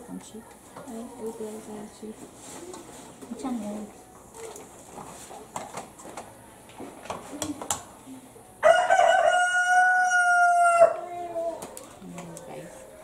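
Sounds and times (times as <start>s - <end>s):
rooster crowing: 8.6s - 11.6s.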